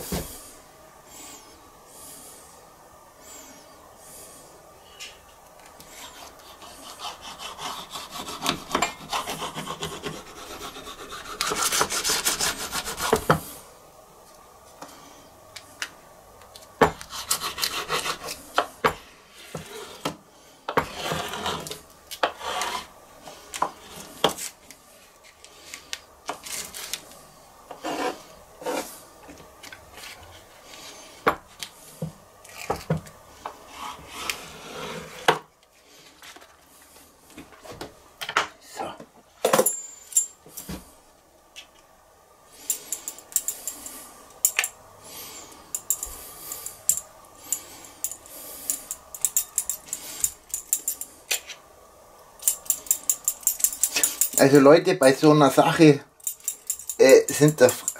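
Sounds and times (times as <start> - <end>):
knife scraping dough: 5.8 - 13.4, 16.9 - 20.1, 20.7 - 24.5, 27.7 - 29.0, 33.6 - 35.4.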